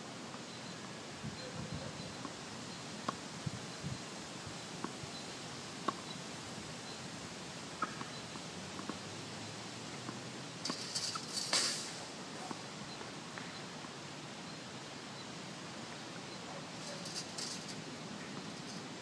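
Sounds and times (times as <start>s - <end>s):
faint outdoor hiss: 0.0s - 19.0s
tennis balls bouncing: 7.8s - 9.1s.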